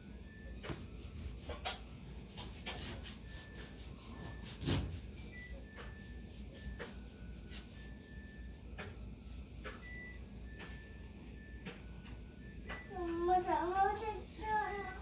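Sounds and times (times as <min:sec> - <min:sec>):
scrubbing strokes on wall: 0:01.0 - 0:08.7.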